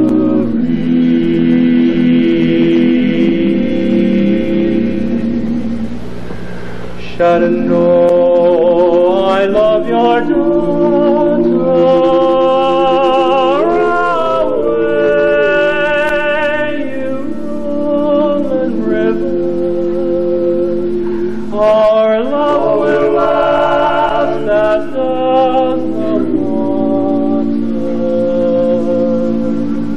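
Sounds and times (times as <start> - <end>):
men singing in close harmony: 0.0 - 6.0, 7.0 - 29.9.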